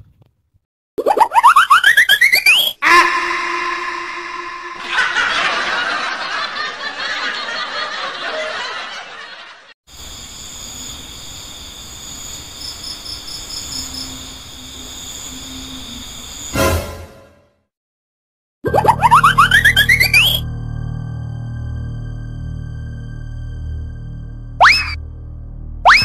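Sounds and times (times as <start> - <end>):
crickets chirping: 9.9 - 16.6.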